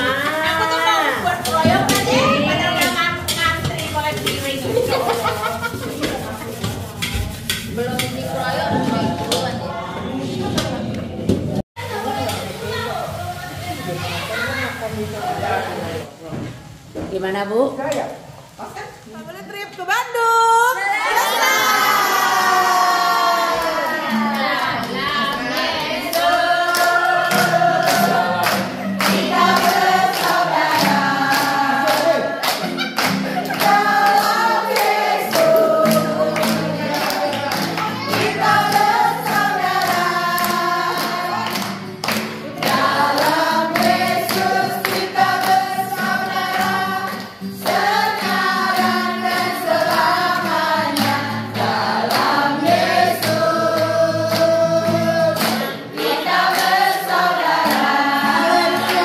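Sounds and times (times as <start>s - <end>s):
group singing: 0.0s - 12.2s, 20.8s - 59.0s
acoustic guitar: 0.0s - 16.1s, 21.3s - 59.0s
hands clapping in time: 25.6s - 45.6s.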